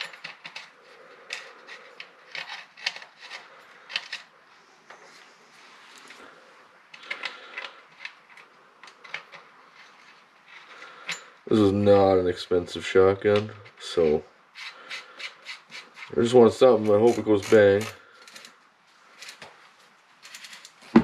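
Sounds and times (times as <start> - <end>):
cap screwing clicks and scraping: 0.0 - 4.3, 14.5 - 18.6.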